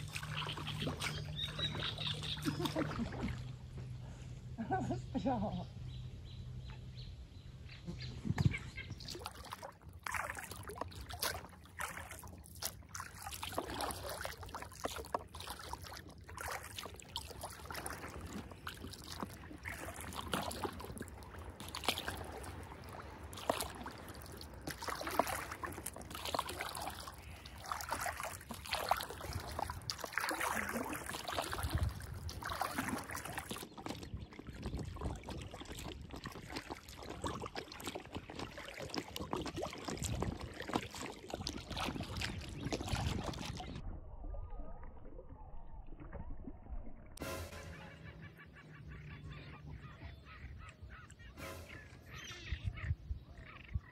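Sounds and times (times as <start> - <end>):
paddle swishing and splashing: 0.0 - 4.0, 8.2 - 43.8, 47.2 - 53.8
water washing: 9.0 - 43.8.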